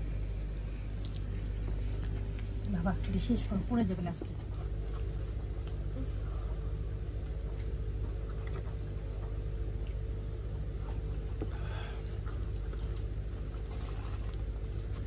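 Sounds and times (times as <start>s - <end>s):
refrigerator electrical hum: 0.0s - 15.0s.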